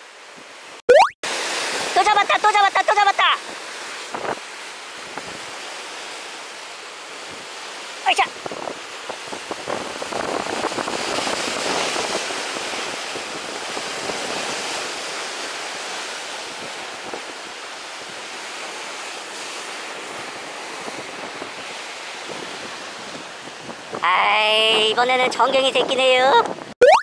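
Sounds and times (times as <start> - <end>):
wind on microphone: 8.3 - 15.1, 20.0 - 26.8.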